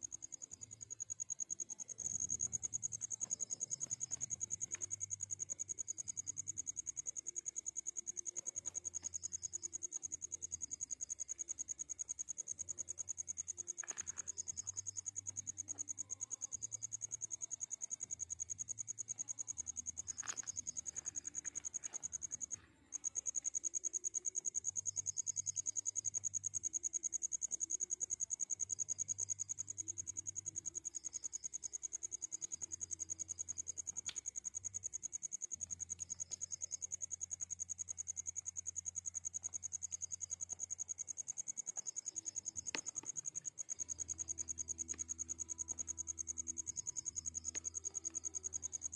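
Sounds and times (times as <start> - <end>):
cricket trilling: 0.0 - 48.9
faint clicks: 33.8 - 34.4, 39.4 - 45.9.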